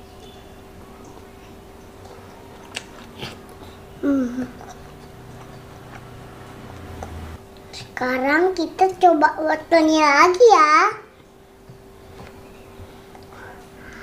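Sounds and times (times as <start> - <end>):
toddler chewing food: 1.1 - 8.0
toddler humming: 4.0 - 4.9.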